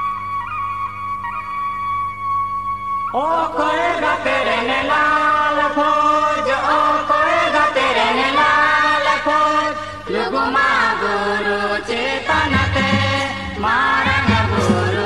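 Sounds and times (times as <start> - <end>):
group of voices singing: 3.2 - 15.0.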